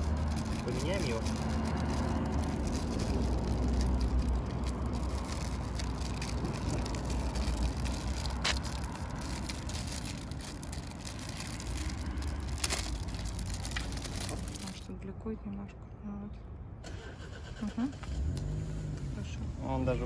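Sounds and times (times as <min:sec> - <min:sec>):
low outdoor rumble: 0:00.0 - 0:16.8.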